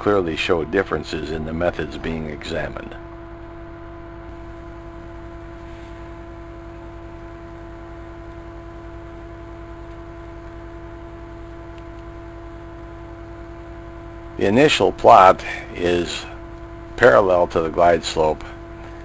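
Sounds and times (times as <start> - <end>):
steady electrical hum: 0.0 - 19.0
light hiss: 4.3 - 7.7.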